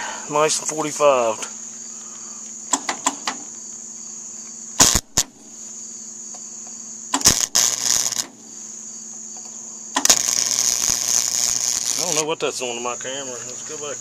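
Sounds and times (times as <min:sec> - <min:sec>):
welding arc crackling: 0:04.8 - 0:05.4, 0:07.1 - 0:08.4, 0:09.9 - 0:12.4.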